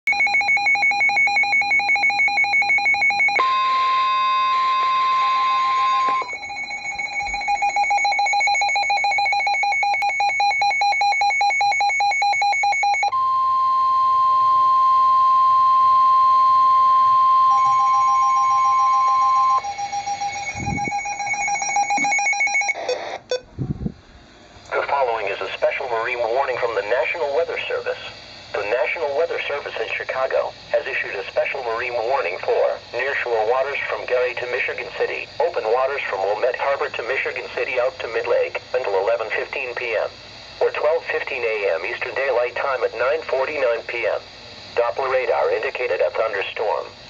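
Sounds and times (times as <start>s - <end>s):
long weather alert tone: 0.1s - 23.5s
rapid electronic beeping alarm: 0.1s - 23.5s.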